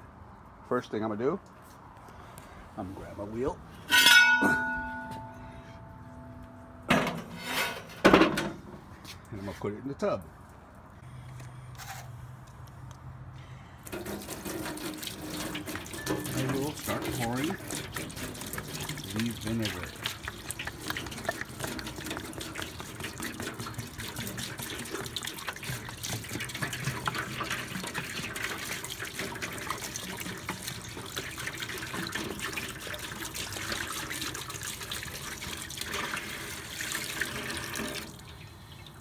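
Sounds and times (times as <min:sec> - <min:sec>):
liquid pouring from plastic jug: 0:13.8 - 0:38.3
liquid splashing onto metal wheel: 0:13.8 - 0:38.4.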